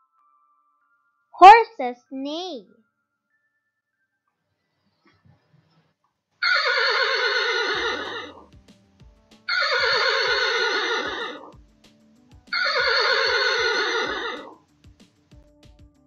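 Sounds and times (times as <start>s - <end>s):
horse neighing: 6.4s - 8.5s, 9.5s - 11.6s, 12.6s - 14.6s.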